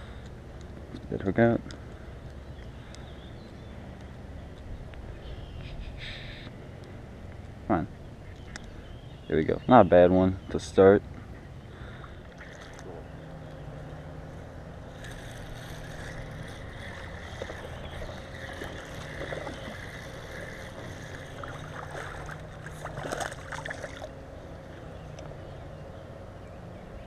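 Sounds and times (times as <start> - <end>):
low outdoor hum and hiss: 0.0 - 27.0
fish splashing in water: 12.0 - 12.9, 15.9 - 24.1.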